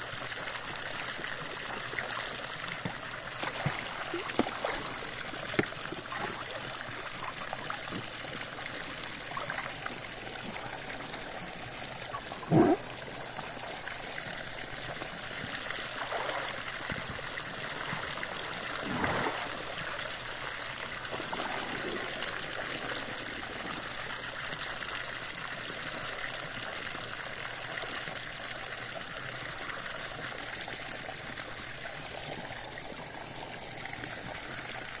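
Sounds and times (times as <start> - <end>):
water jet pouring into pool: 0.0 - 14.4, 15.6 - 26.2
water splash: 3.3 - 7.3, 16.0 - 17.2, 18.5 - 20.2.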